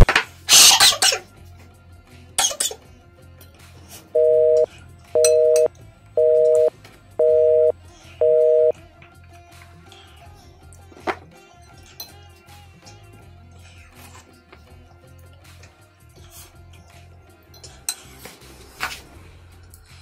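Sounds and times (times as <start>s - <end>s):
telephone busy signal beeps: 4.2s - 8.7s.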